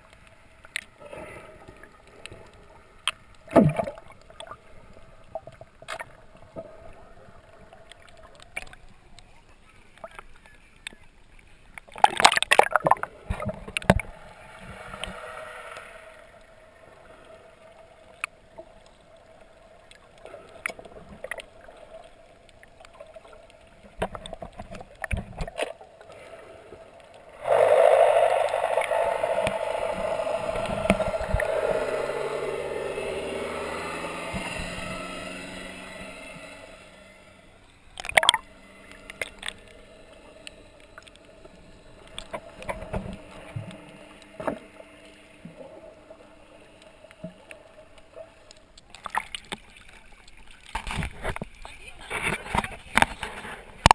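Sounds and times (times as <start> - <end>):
underwater gurgling: 0.0 - 53.9
splash: 3.0 - 4.6, 11.9 - 18.3, 38.0 - 39.8, 48.5 - 53.9.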